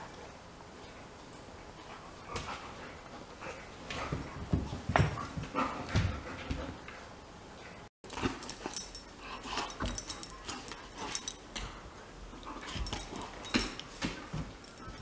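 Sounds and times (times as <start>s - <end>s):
dog play noises: 0.0s - 15.0s
paws scuffling and claws clicking: 8.1s - 15.0s.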